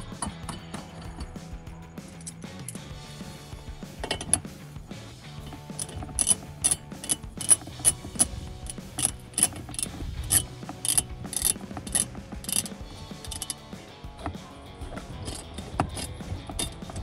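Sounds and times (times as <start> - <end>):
hand ratchet clicking: 4.0 - 4.5, 5.4 - 17.0.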